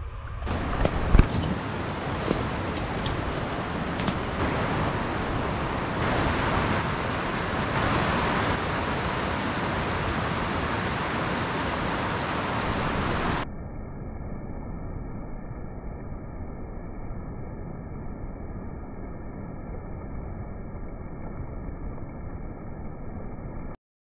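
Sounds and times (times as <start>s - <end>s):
water cascading over rocks: 0.5s - 6.8s
creek water rushing: 0.5s - 13.4s.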